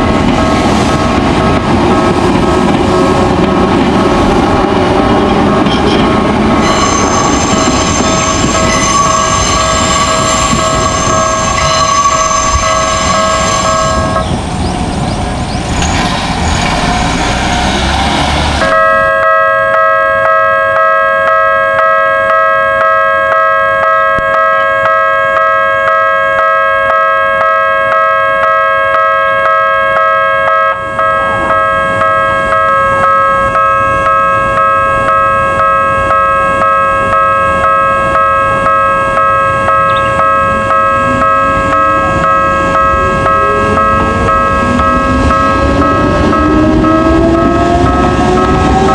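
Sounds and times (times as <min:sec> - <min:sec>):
electric train passing: 0:00.0 - 0:48.9
level crossing warning bell: 0:05.0 - 0:14.3, 0:18.6 - 0:48.9
second warning tone: 0:05.2 - 0:14.4, 0:18.7 - 0:48.9
different crossing bell ringing: 0:06.6 - 0:14.2, 0:18.7 - 0:47.2.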